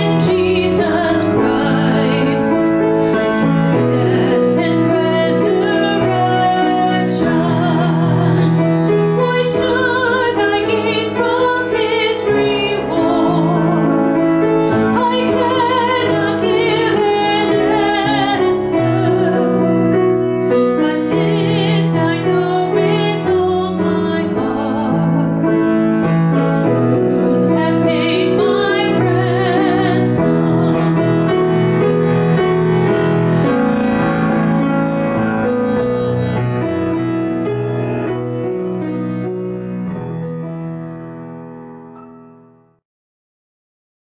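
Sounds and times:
woman singing with vibrato: 0:00.0 - 0:31.5
grand piano playing: 0:00.0 - 0:42.8.

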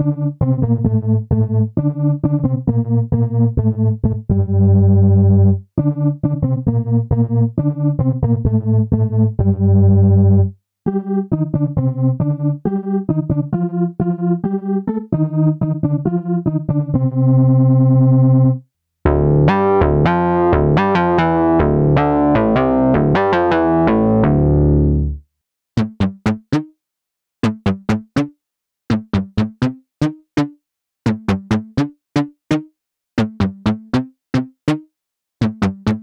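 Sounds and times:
plucked synthesizer notes: 0:00.0 - 0:25.2
synthesizer organ-style sustained notes: 0:00.0 - 0:25.2.

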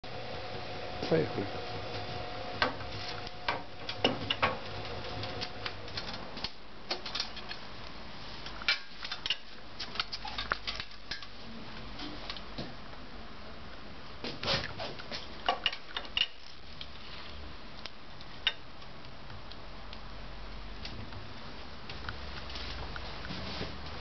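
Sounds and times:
generator rotor hum: 0:00.0 - 0:05.9.

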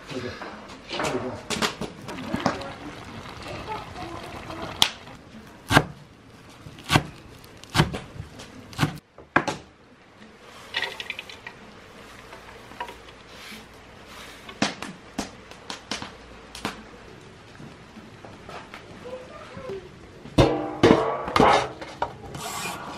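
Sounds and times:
knife chopping on wooden board: 0:06.9 - 0:08.1, 0:08.7 - 0:09.0.

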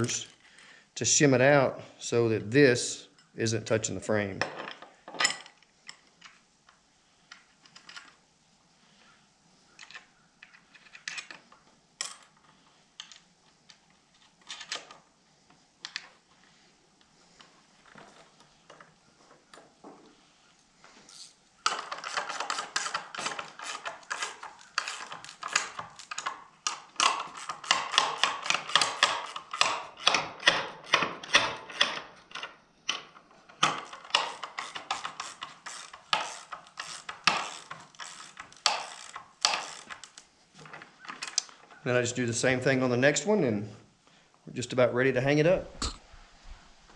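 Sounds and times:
ratchet wrench clicking: 0:21.1 - 0:26.3, 0:27.0 - 0:30.2, 0:33.7 - 0:40.2.

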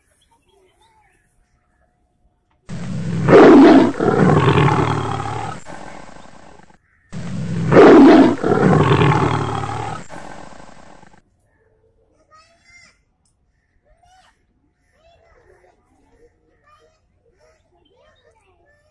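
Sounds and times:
tiger roar: 0:02.7 - 0:11.2.

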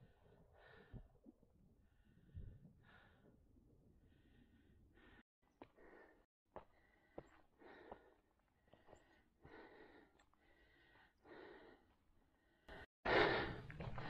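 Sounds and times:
person breathing: 0:05.8 - 0:14.0.

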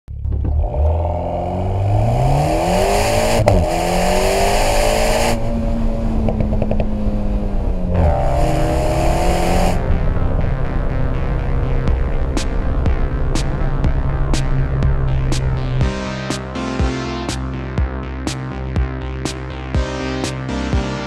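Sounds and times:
car engine accelerating hard: 0:00.1 - 0:16.0
exhaust crack at upshift: 0:00.1 - 0:16.0
faint exhaust pops: 0:06.2 - 0:07.0.

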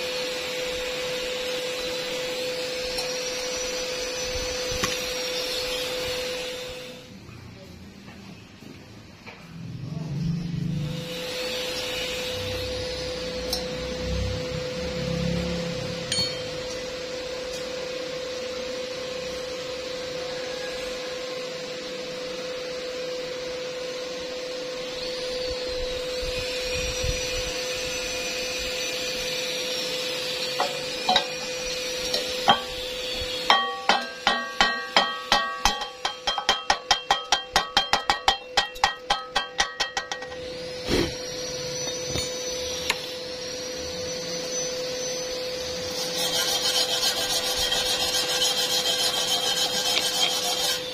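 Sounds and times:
chipping hammer striking metal: 0:30.6 - 0:40.4.

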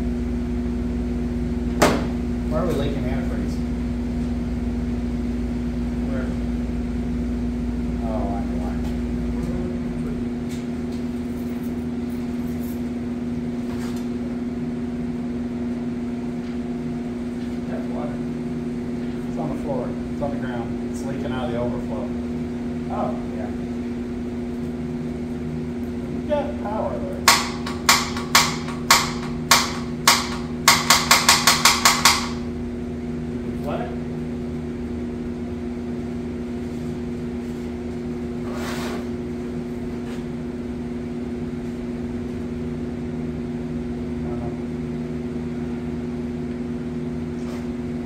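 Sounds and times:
steady machine hum: 0:00.0 - 0:48.0
sharp knocks: 0:27.3 - 0:32.4.

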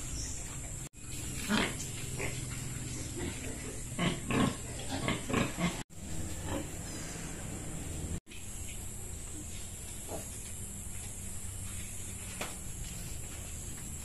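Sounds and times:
steady low hum: 0:00.0 - 0:14.0
pigs grunting: 0:00.9 - 0:08.2.

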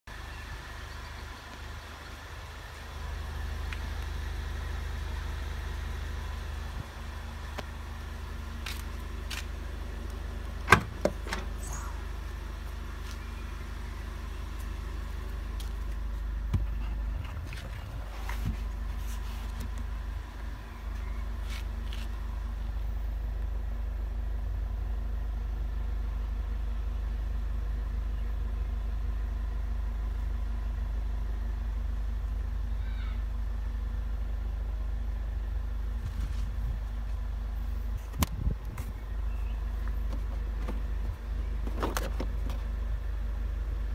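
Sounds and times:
steady low rumble: 0:00.1 - 0:43.9
car boot lid click: 0:10.7 - 0:11.6.

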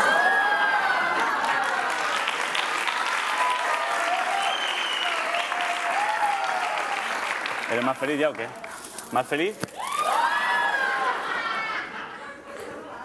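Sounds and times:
audience whoops: 0:00.0 - 0:07.3, 0:09.8 - 0:11.4
audience applauding: 0:00.0 - 0:08.8.

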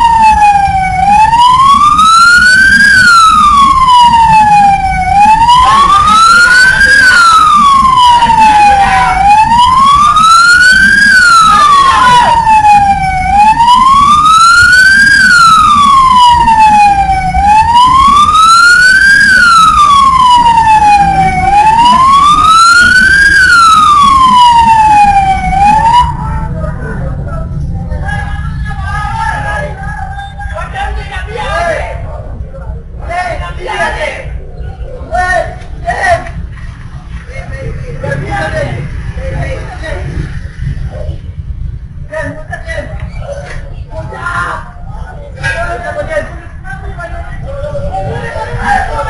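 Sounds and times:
wailing siren: 0:00.0 - 0:26.6.

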